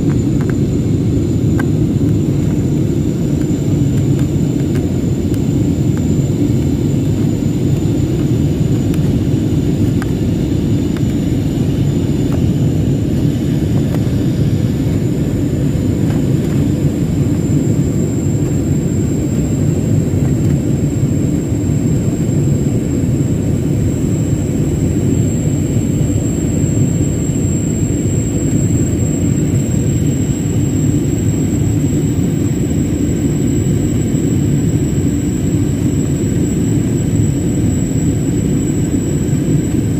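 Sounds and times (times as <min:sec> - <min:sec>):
high steady whine: 0:00.0 - 0:39.9
jet engine and airflow rumble: 0:00.0 - 0:39.9.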